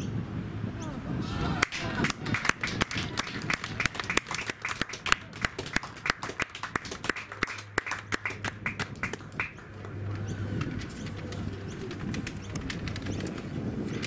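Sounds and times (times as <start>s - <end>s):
spectators clapping: 1.6s - 10.0s.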